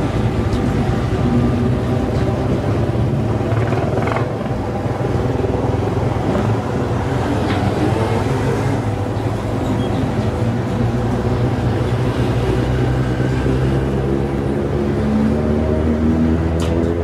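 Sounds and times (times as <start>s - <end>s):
wind and road noise: 0.0s - 17.0s
motorcycle engine running: 0.2s - 7.1s.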